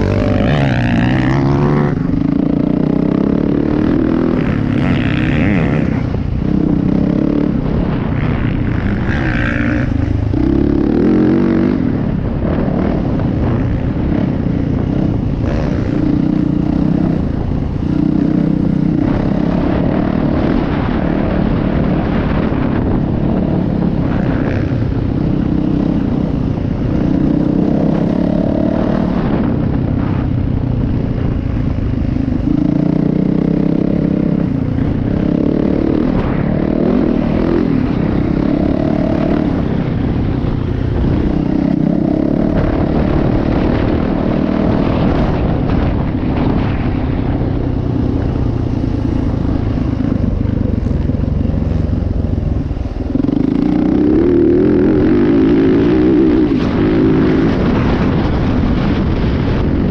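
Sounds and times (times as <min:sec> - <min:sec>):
dirt bike engine running hard: 0:00.0 - 0:59.9
wind noise: 0:00.0 - 0:59.9.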